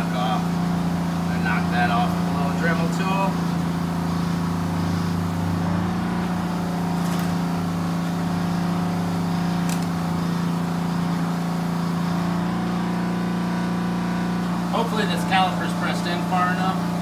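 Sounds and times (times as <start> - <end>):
motor humming: 0.0 - 17.0.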